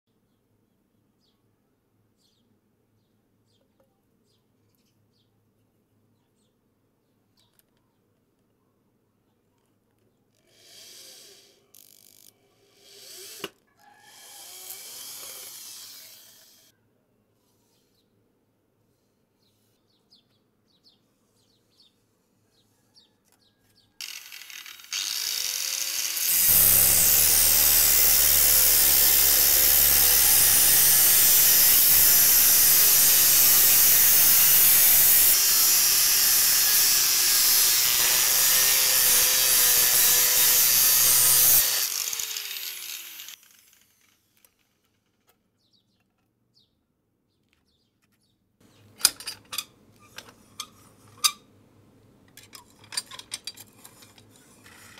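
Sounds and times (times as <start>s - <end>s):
angle grinder cutting steel: 12.6s - 13.5s, 14.1s - 16.7s, 24.0s - 44.8s.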